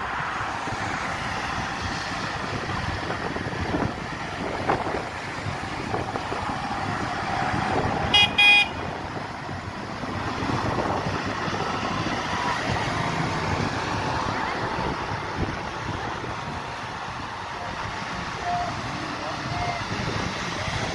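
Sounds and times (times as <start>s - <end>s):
tractor engines running: 0.0s - 20.9s
tyres on wet road: 0.0s - 20.9s
vehicle horn toots: 8.1s - 8.9s, 18.4s - 18.8s.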